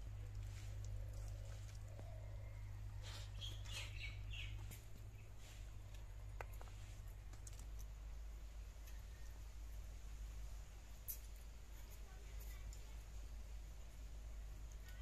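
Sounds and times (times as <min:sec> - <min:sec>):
low hum: 0:00.0 - 0:15.0
faint bird chirps: 0:00.8 - 0:05.3.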